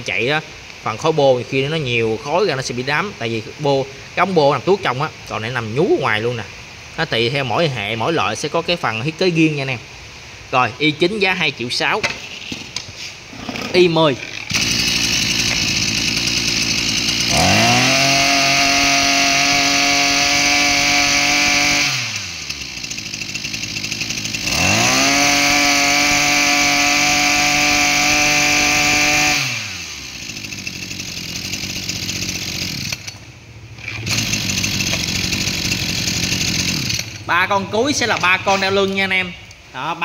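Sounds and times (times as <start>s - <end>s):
brush cutter engine revving: 13.3s - 39.2s.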